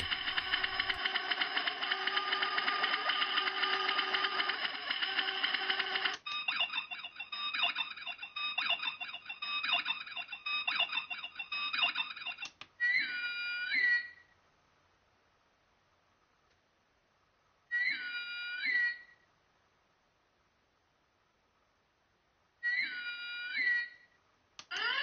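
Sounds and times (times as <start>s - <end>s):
electronic beeping and chirping: 6.3s - 13.2s.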